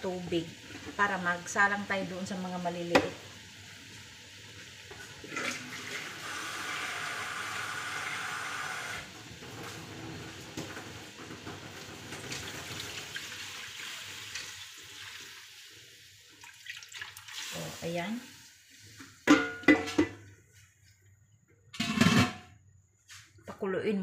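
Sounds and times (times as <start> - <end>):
water running into container: 4.8 - 19.2
water poured into steamer: 4.9 - 19.0.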